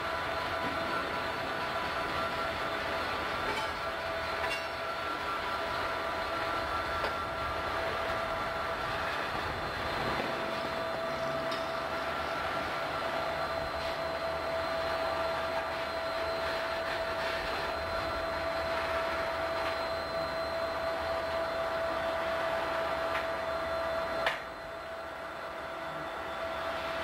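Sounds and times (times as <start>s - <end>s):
freight train cars rolling past: 0.0s - 20.3s
constant whine: 0.0s - 27.0s.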